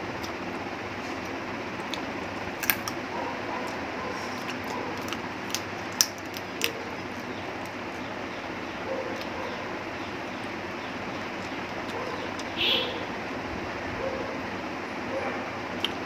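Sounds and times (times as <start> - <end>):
crunchy chewing: 1.0 - 8.2, 8.8 - 10.6, 11.2 - 12.6.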